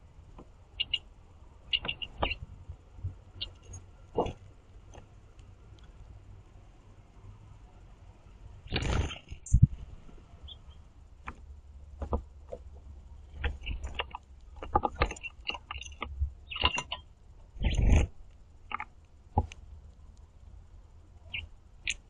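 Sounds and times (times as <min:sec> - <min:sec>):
beaks pecking: 0:00.0 - 0:06.1, 0:08.6 - 0:20.5, 0:21.2 - 0:22.0
short high bird chirps: 0:00.8 - 0:01.0, 0:01.7 - 0:02.4, 0:15.2 - 0:17.0
birds scuffling: 0:01.6 - 0:06.0, 0:08.7 - 0:19.6.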